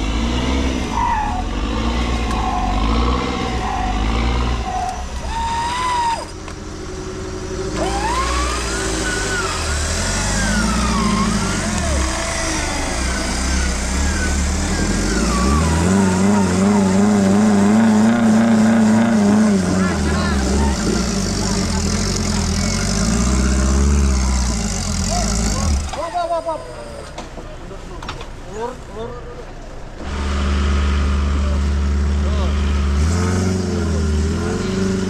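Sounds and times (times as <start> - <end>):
drivetrain whine: 0.0 - 27.4
off-road vehicle engine: 0.0 - 35.0.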